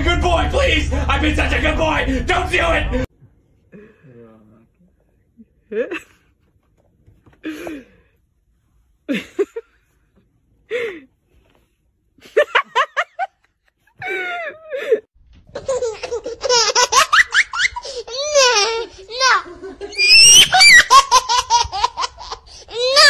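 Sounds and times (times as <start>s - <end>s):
person laughing: 12.2s - 18.8s.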